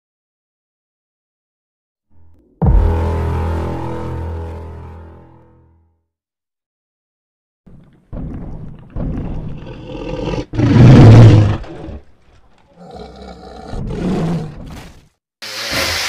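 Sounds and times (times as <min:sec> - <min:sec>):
dinosaur roaring: 0:09.2 - 0:12.1, 0:12.7 - 0:14.8.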